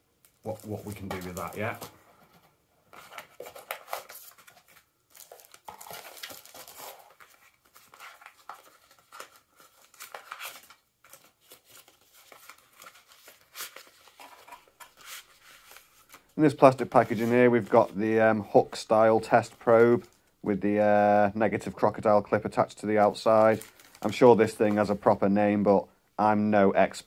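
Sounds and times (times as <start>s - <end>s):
plastic packaging crinkling: 0.4s - 1.9s, 3.2s - 17.9s, 23.0s - 25.2s.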